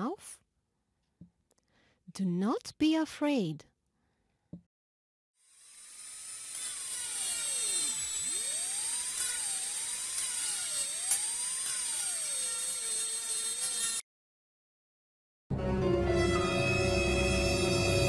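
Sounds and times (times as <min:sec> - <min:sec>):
dentist's drill whining: 0:05.4 - 0:14.0.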